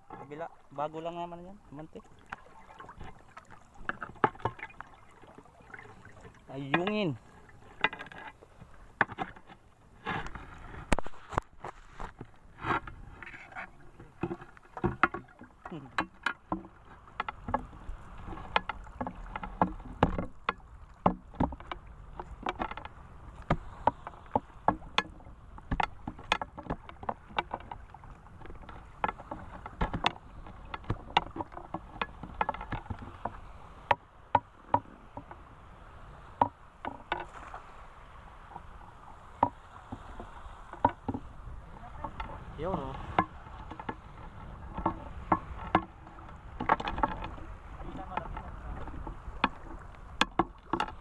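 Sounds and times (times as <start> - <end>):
water sloshing and splashing: 0.0 - 51.0.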